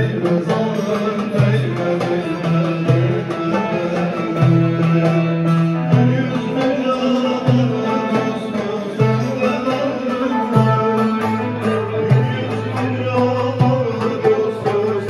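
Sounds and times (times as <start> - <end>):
plucked string folk music: 0.0 - 15.0.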